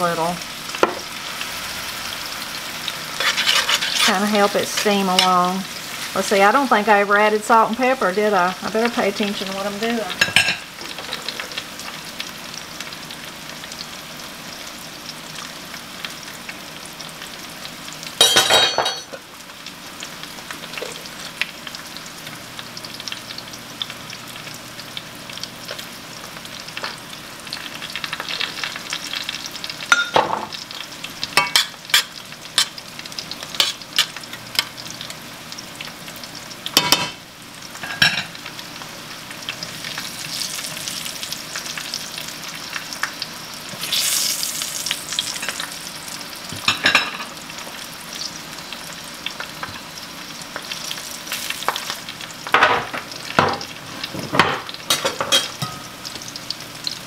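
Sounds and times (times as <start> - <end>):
fat sizzling in a skillet: 0.0 - 57.0
fork scraping a pan: 3.2 - 5.3, 33.6 - 34.1.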